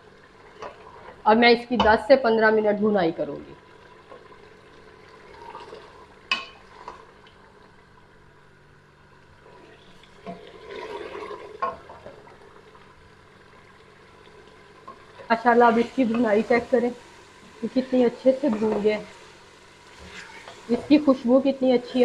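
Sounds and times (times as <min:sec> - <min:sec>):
meat sizzling in oil: 0:10.0 - 0:22.0.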